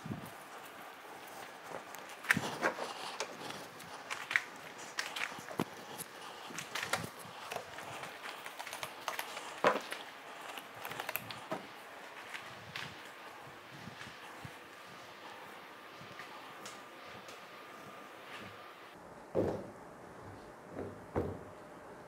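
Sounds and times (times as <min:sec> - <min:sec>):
footsteps on plastic sheet: 0:00.0 - 0:16.6
clicks taps and rustles: 0:00.1 - 0:15.0.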